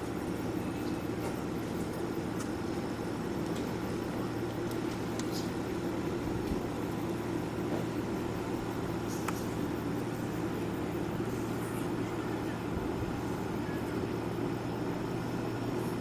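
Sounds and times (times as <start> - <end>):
low background hum and murmur: 0.0 - 16.0
faint high clicks: 4.4 - 5.8.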